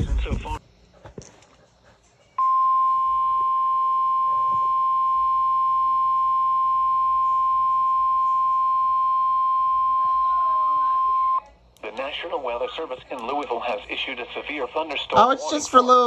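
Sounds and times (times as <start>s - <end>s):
steady alarm tone from radio: 2.4s - 11.4s.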